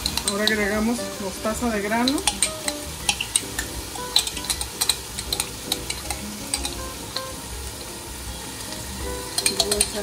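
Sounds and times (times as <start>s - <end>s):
onion frying in oil: 0.0s - 10.0s
crackles and pops: 2.0s - 7.8s.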